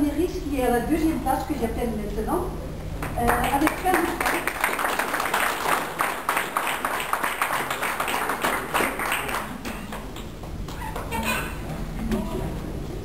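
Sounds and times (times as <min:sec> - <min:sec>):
people clapping: 0:03.0 - 0:11.6.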